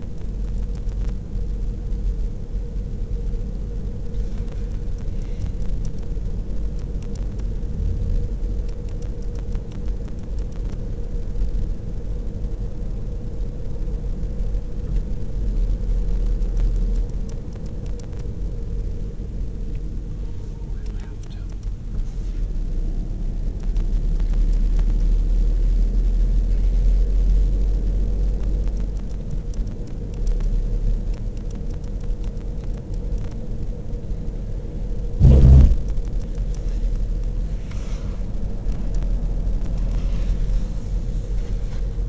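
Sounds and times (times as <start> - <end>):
car engine and tyre noise: 0.0 - 42.0
short loud thump: 35.2 - 35.9.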